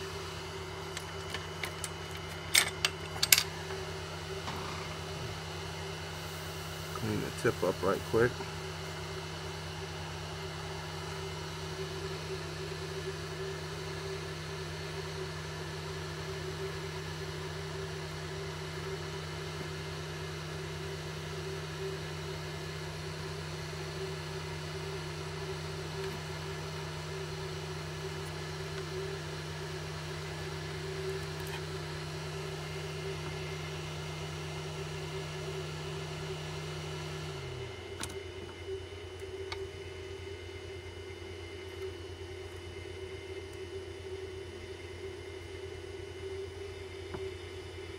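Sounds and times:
blower fan humming and hissing: 0:00.0 - 0:47.9.

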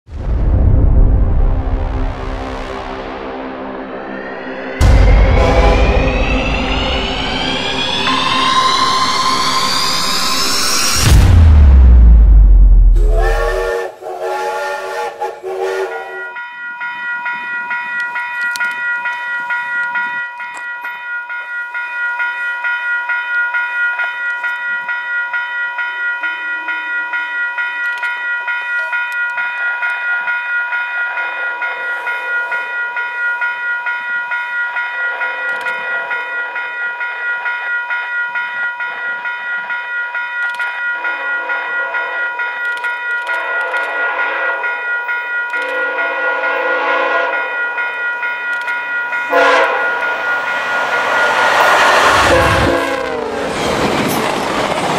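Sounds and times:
distant train horn blasts: 0:01.7 - 0:07.3, 0:13.0 - 0:16.4, 0:43.4 - 0:44.8, 0:45.6 - 0:47.6, 0:49.2 - 0:53.5
railway crossing bell ringing: 0:03.9 - 0:11.3, 0:15.6 - 0:54.9
short whistle sting: 0:04.2 - 0:11.3, 0:13.0 - 0:13.9.

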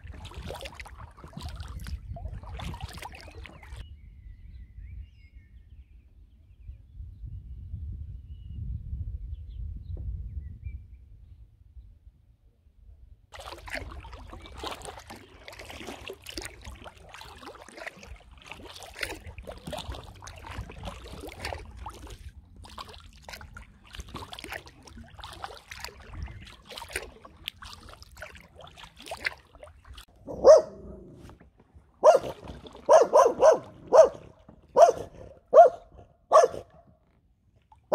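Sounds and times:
paddle splashing in water: 0:00.0 - 0:03.8, 0:13.4 - 0:37.9
water dripping off paddle: 0:00.0 - 0:03.8, 0:13.4 - 0:30.1
dog barking: 0:30.3 - 0:31.0, 0:32.0 - 0:36.8.

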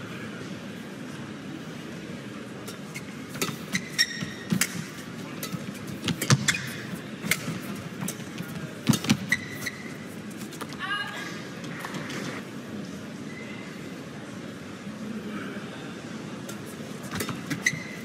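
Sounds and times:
indoor arena hum: 0:00.0 - 0:18.0
racket hitting shuttlecock: 0:02.7 - 0:09.8
shoe squeaks on court: 0:02.9 - 0:04.7, 0:06.0 - 0:07.5, 0:08.9 - 0:10.4, 0:17.0 - 0:18.0.

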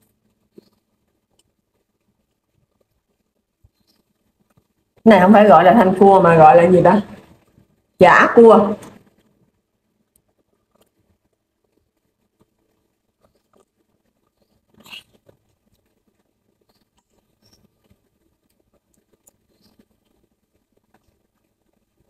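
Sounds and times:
quiet chewing: 0:00.0 - 0:05.0, 0:10.0 - 0:22.0.

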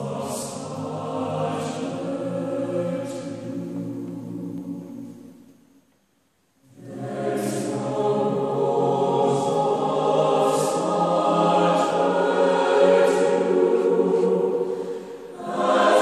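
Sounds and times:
mixed choir singing: 0:00.0 - 0:05.4, 0:06.7 - 0:16.0.

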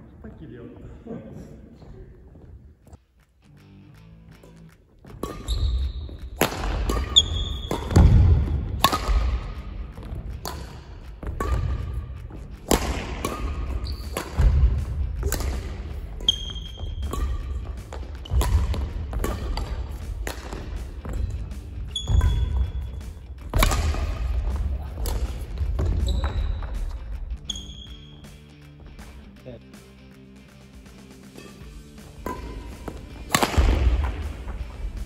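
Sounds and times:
shoe squeaks: 0:04.4 - 0:08.1, 0:13.3 - 0:14.3, 0:16.0 - 0:20.1, 0:20.7 - 0:23.3, 0:25.8 - 0:28.5
racket hitting shuttlecock: 0:04.4 - 0:28.4, 0:30.8 - 0:35.0
heavy footfalls on court: 0:05.0 - 0:08.9, 0:14.2 - 0:27.4, 0:32.0 - 0:35.0.

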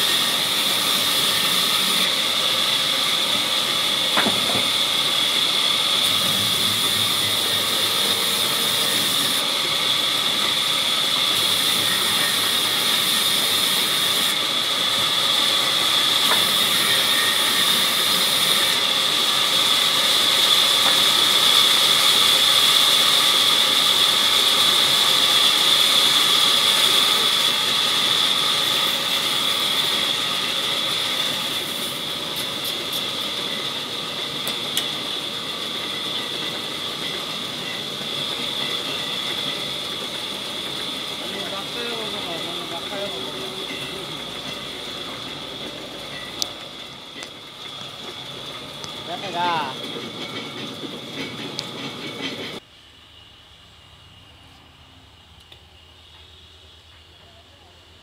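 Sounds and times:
band saw whining: 0:00.0 - 0:52.6
saw blade rasping through wood: 0:06.0 - 0:09.6, 0:10.2 - 0:14.4, 0:15.5 - 0:33.0.

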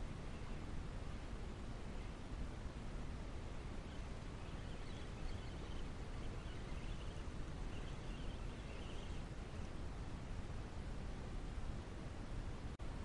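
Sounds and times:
faint high wavering chirps: 0:03.0 - 0:09.9.

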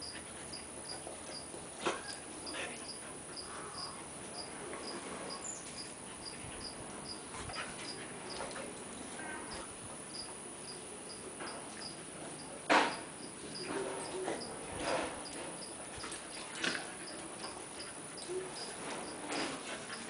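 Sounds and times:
insect chirping: 0:10.1 - 0:16.4, 0:17.8 - 0:19.3.

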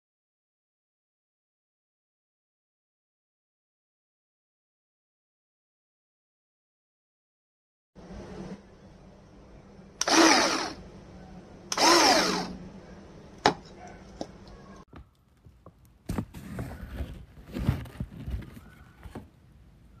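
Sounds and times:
electric chopper motor bursts: 0:10.0 - 0:10.8, 0:11.7 - 0:12.6.

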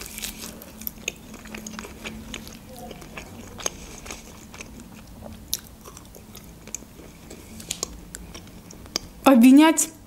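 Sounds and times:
chewing meat: 0:00.0 - 0:09.1.

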